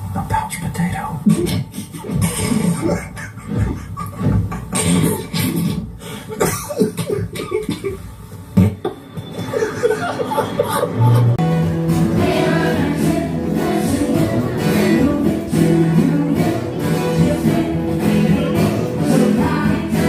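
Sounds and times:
live band playing: 11.4 - 20.0.

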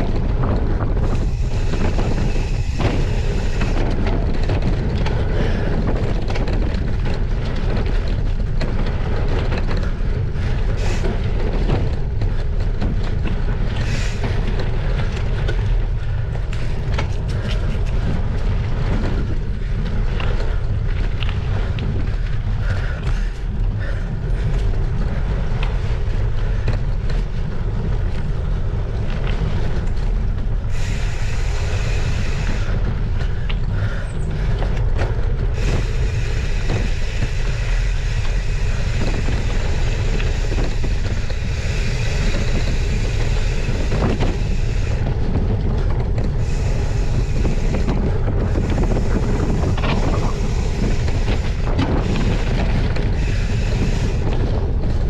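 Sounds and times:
bike knocks and rattles: 0.0 - 31.2
bike tyres rumbling on gravel: 0.0 - 55.0
wind buffeting microphone: 0.0 - 55.0.

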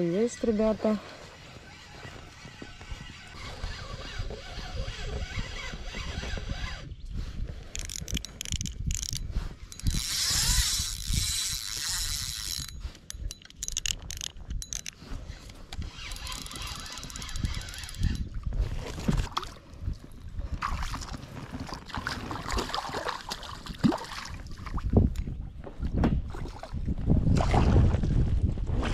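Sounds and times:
fishing reel ratcheting: 1.6 - 7.0, 7.6 - 18.4.

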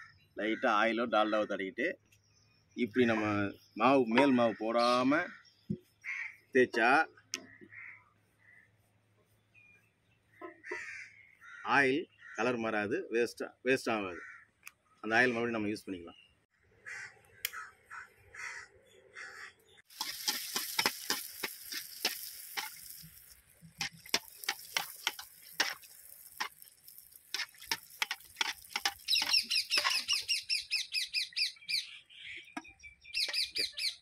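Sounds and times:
oil sizzling with crackling pops: 19.9 - 30.4
rapid chirping call: 24.0 - 34.0.

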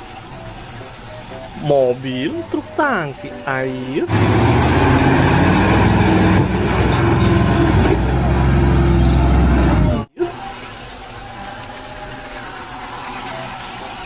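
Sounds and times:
road noise: 0.0 - 14.0
truck engine running hard: 4.1 - 10.1.

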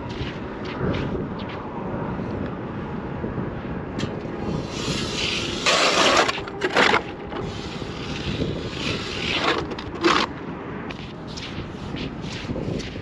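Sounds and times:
ice auger crunching ice: 5.7 - 7.1.

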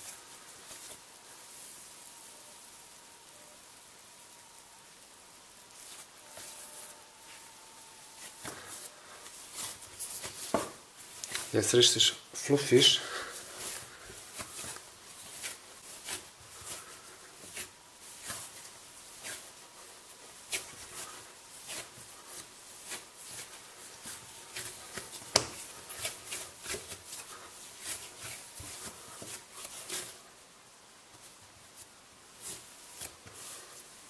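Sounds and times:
hands kneading dough: 0.0 - 34.0
sharp tap: 25.3 - 25.6.

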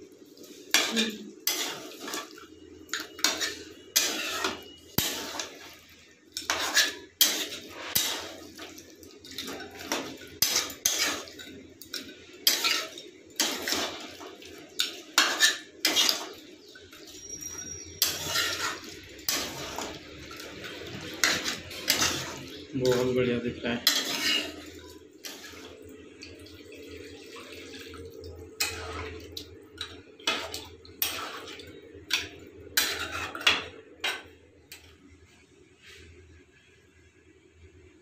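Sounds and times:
metal spatula scraping a pan: 0.4 - 23.2, 23.8 - 25.8, 28.6 - 29.2, 30.2 - 34.9.

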